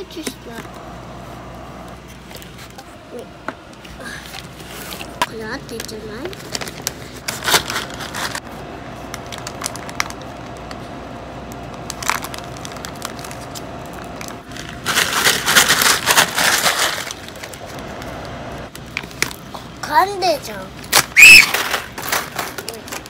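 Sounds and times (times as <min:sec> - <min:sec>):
paper bag crinkling: 0:04.0 - 0:10.8, 0:11.8 - 0:19.2, 0:20.9 - 0:23.0
paper crumpling and rustling: 0:04.0 - 0:10.9, 0:11.9 - 0:18.2, 0:21.2 - 0:23.0.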